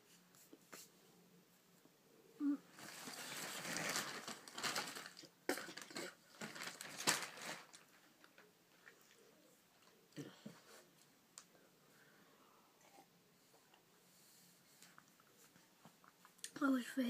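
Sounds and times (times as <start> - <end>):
rustling and crinkling: 2.5 - 11.5.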